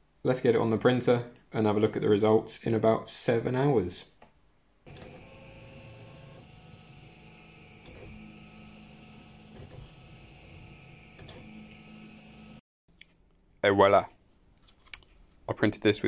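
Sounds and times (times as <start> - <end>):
steady machine hum: 4.9 - 12.6
stepper motors whining: 4.9 - 12.6.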